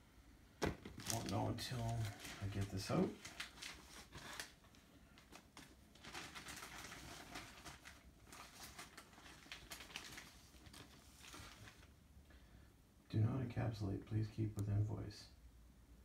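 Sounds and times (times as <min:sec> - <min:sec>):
packaging rustling and crinkling: 0:00.6 - 0:11.9.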